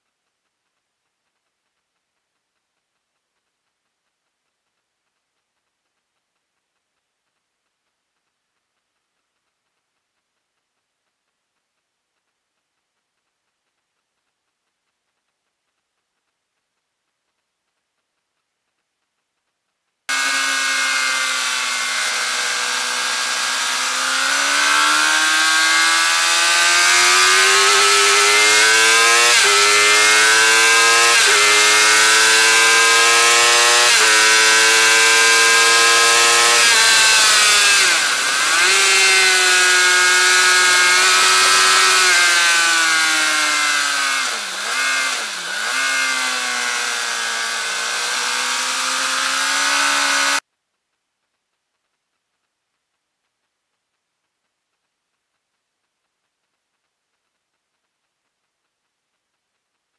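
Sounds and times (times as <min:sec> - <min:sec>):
motorcycle engine revving: 0:20.1 - 0:50.4.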